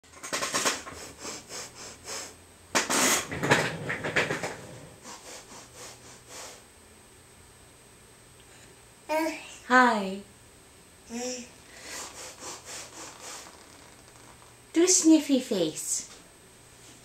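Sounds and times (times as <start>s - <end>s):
rapid sniffing through nose: 0.9s - 2.4s, 4.9s - 6.7s, 11.7s - 13.6s.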